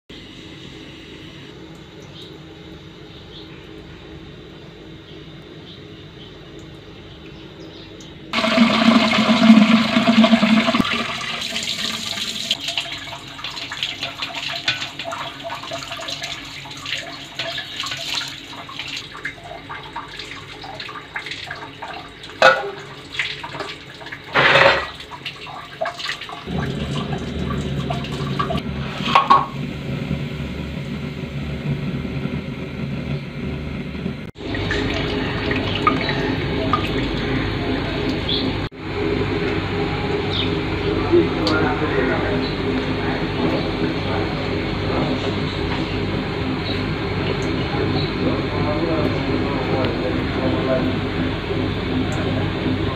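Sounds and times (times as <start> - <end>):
water running and splashing: 8.3 - 29.4
metal pot clanks: 22.4 - 22.9, 24.3 - 25.0.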